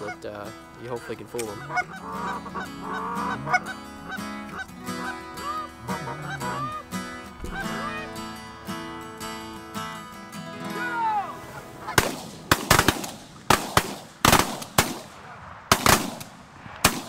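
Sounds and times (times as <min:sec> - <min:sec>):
geese honking: 0:00.0 - 0:14.8
shotgun blasts: 0:11.9 - 0:17.0.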